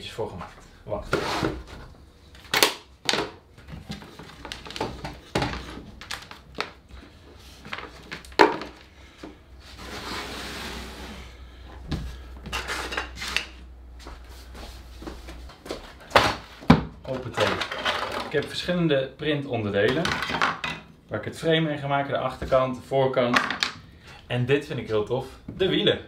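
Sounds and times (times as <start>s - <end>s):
rustling scrape: 1.1s - 1.8s, 9.6s - 11.6s, 12.5s - 13.6s.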